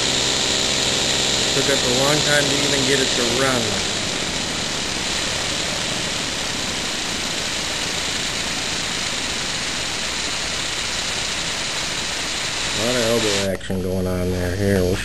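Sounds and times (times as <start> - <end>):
compressed air engine hissing: 0.0 - 13.6.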